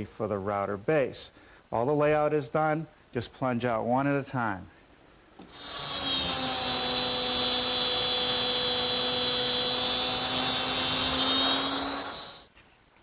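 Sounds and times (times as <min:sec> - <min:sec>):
router high-pitched whine: 0:05.4 - 0:12.5.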